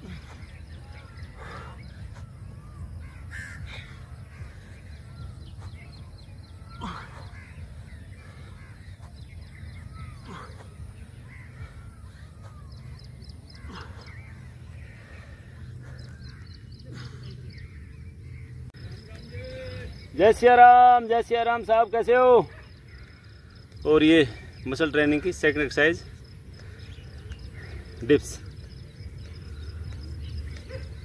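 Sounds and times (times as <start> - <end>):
bird harsh call: 0.0 - 18.5
faint bird chirps: 0.0 - 20.5.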